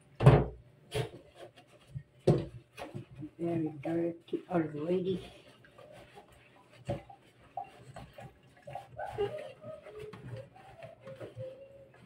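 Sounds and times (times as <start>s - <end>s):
wet sponge scrubbing plastic: 0.0s - 12.0s
knock: 0.2s - 0.6s.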